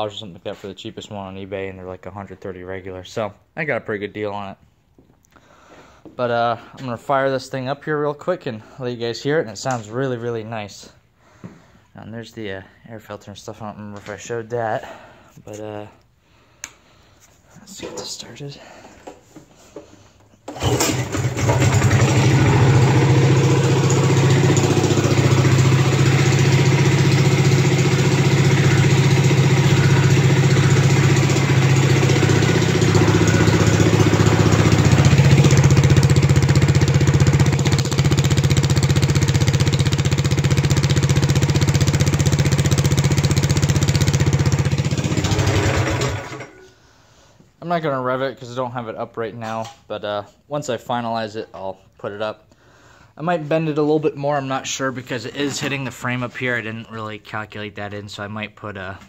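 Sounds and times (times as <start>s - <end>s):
small engine starting and idling: 20.5s - 46.8s.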